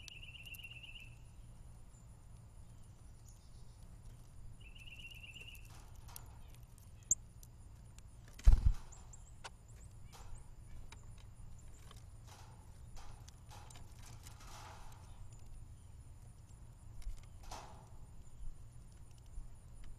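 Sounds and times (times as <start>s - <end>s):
bird trill: 0.0s - 2.1s, 4.5s - 7.2s.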